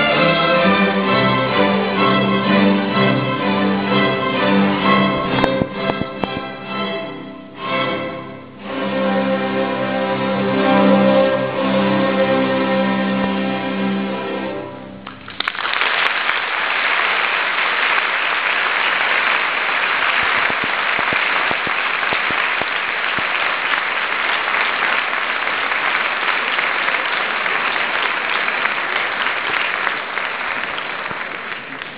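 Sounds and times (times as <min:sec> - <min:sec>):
large audience applauding: 0:15.0 - 0:31.9.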